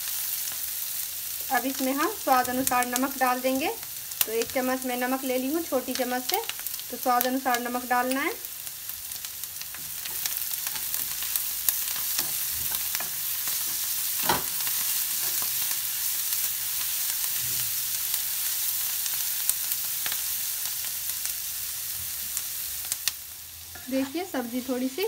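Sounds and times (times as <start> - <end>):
vegetables sizzling in oil: 0.0 - 25.0.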